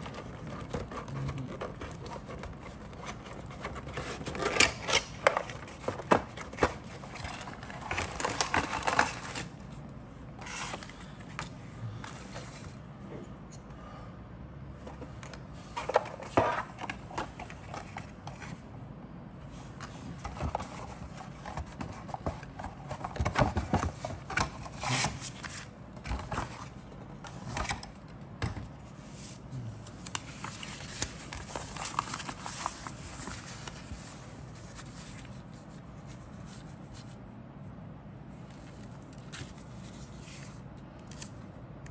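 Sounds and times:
hands handling a cardboard box: 0.0 - 9.5
paper rustling: 30.0 - 37.2.

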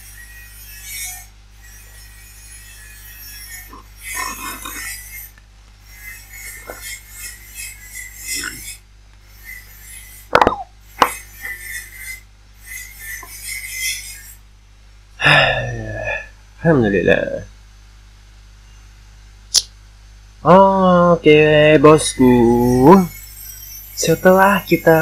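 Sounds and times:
sharp clicks: 19.5 - 19.8.

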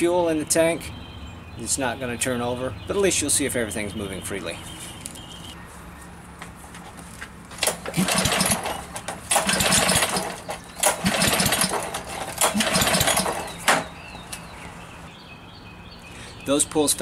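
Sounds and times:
recoil starter cord pull: 7.6 - 13.9
engine turning over without firing: 7.6 - 14.0.

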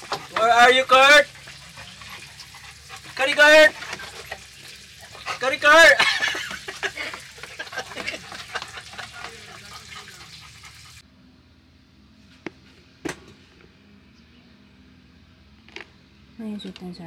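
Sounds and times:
dog panting: 0.0 - 11.0
man's voice: 3.2 - 3.8.

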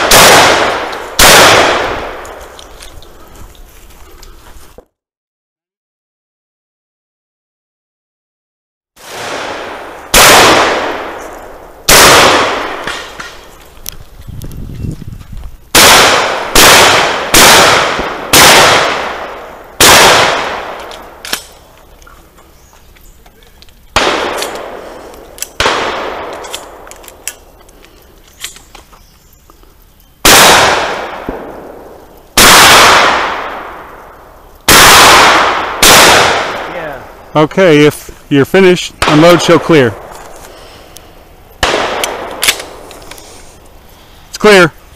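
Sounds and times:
shotgun shots echoing: 0.0 - 2.4, 9.0 - 13.5, 15.7 - 21.6, 24.0 - 27.1, 30.2 - 34.0, 34.7 - 37.0, 39.0 - 40.2, 41.6 - 42.8
small sharp clicks: 20.8 - 22.2.

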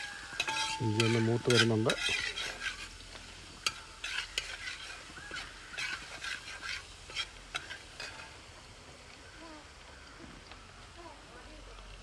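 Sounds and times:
steel spatula scraping a pan: 0.0 - 8.5
oil sizzling: 0.0 - 12.0.

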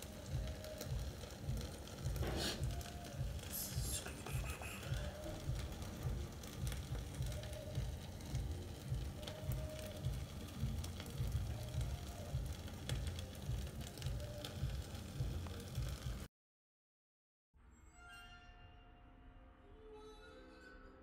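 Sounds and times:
pops and crackles: 0.0 - 16.3
sauce sizzling in a pan: 0.0 - 16.3.

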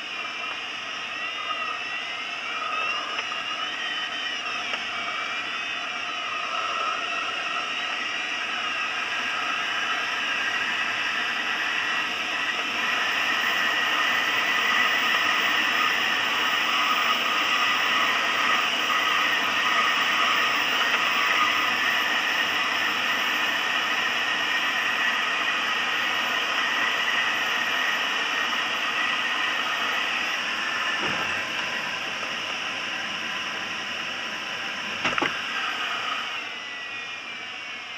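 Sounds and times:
thin whistling tones: 0.2 - 9.9.

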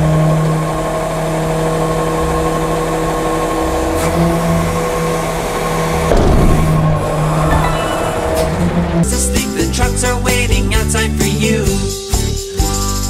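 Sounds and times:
hydraulic machine whine: 0.0 - 9.2
truck engine running: 0.0 - 13.0.

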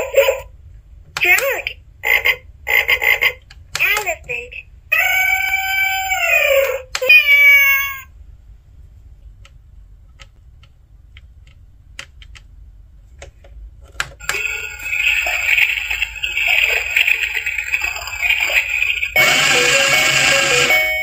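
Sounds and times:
toy washing machine running: 14.2 - 21.0.

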